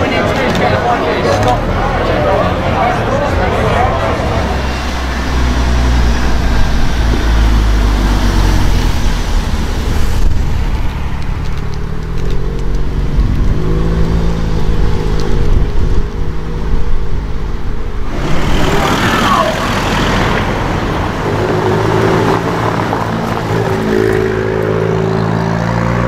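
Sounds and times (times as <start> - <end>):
car engine accelerating: 0.0 - 26.0.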